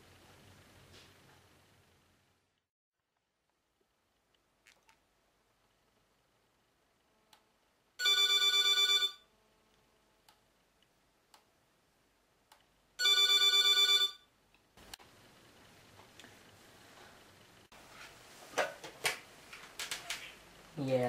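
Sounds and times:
telephone ringing: 8.0s - 9.3s, 13.0s - 14.3s.

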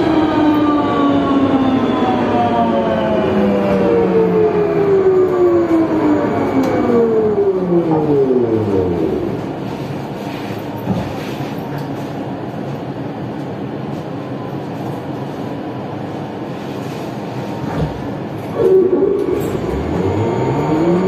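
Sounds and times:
train traction motor whine: 0.0s - 10.7s, 17.5s - 21.0s
steady train hum: 0.0s - 21.0s.

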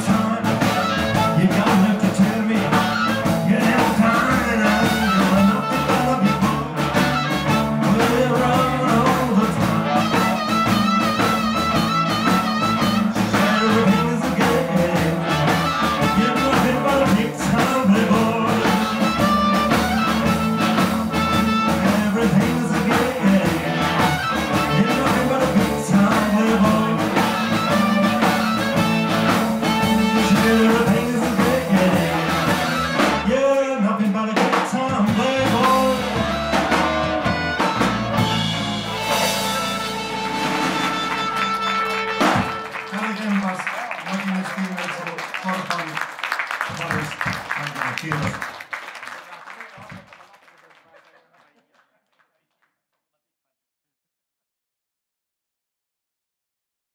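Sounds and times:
drum kit shuffle: 0.0s - 33.4s, 34.1s - 48.6s
electric guitar: 0.0s - 33.4s, 34.9s - 42.9s
electric bass: 0.0s - 33.5s, 34.8s - 42.8s
amplified harmonica: 0.3s - 33.4s, 35.2s - 43.3s.

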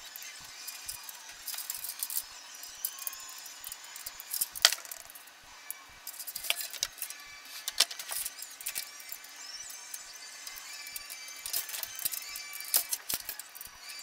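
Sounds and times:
computer hardware clicks and knocks: 6.1s - 9.2s, 10.5s - 13.7s.

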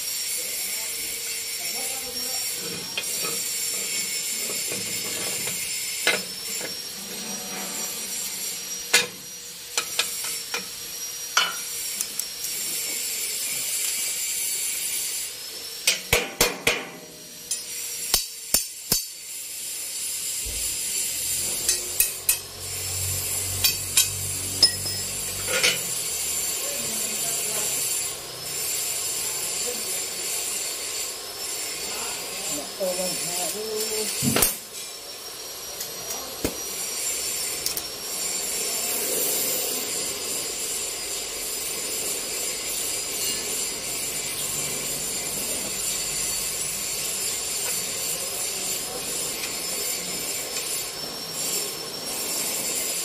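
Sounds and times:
metal tools clanking: 23.6s - 25.9s.

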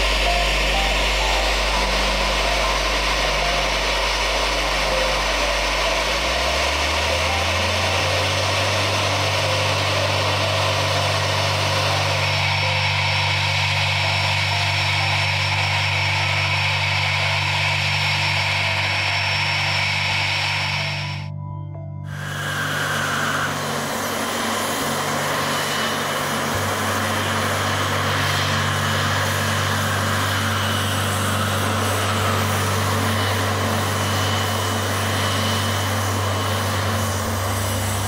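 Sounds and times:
jet engine hum: 0.0s - 21.4s, 22.1s - 38.0s.

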